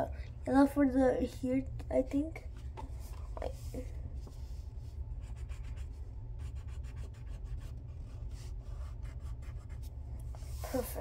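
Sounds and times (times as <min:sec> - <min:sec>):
low hum: 0:00.0 - 0:11.0
pencil scratching on paper: 0:05.2 - 0:10.9.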